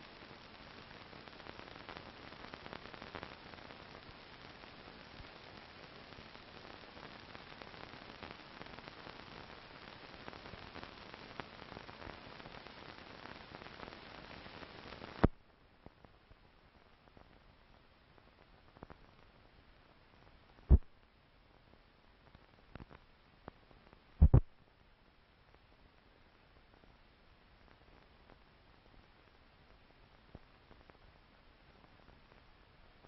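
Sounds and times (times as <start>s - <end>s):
film soundtrack hiss and crackle: 0.0s - 33.0s
sharp pop: 24.2s - 24.5s.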